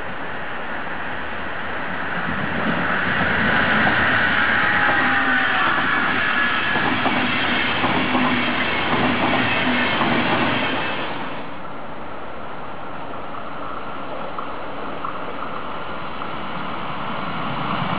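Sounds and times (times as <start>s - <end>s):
train wheels rumbling on rails: 0.0s - 17.9s
wheels clicking over rail joints: 13.1s - 16.6s.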